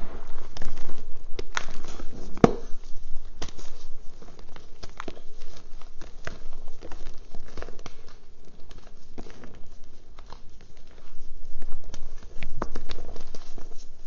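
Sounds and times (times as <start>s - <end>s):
chalk crunching and crumbling: 0.0s - 14.0s.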